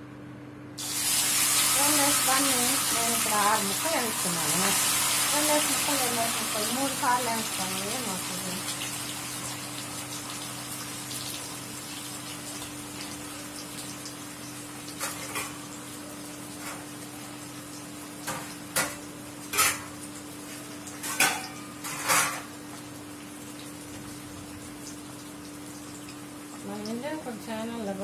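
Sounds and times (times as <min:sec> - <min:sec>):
cooktop hum: 0:00.0 - 0:28.0
sharp oil crackles: 0:00.8 - 0:18.8
fish deep-frying in oil: 0:00.8 - 0:28.0.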